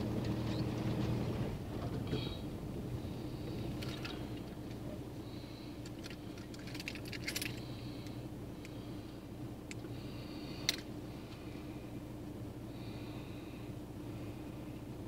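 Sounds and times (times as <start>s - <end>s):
low hum inside car: 0.0s - 15.0s
keys jangling: 6.0s - 7.6s.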